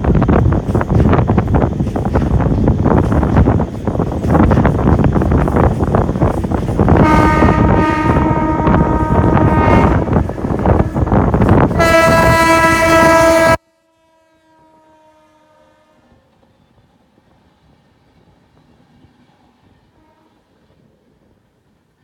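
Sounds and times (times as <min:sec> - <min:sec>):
moving train rumble: 0:00.0 - 0:22.0
locomotive horn blasts: 0:07.0 - 0:16.1, 0:20.0 - 0:20.4.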